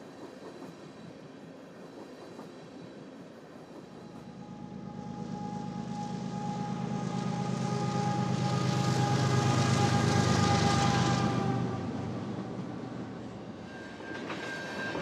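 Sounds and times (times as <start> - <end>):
diesel locomotive engine hum: 0.0 - 15.0
wheel and rail noise: 0.0 - 15.0
high whine: 4.1 - 14.4.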